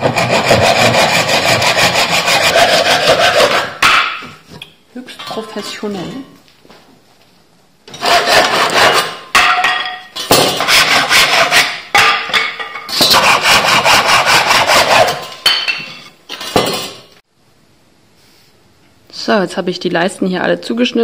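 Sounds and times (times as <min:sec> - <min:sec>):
handsaw cutting wood: 0:00.0 - 0:03.8, 0:08.0 - 0:09.2, 0:10.6 - 0:11.8, 0:13.0 - 0:15.2.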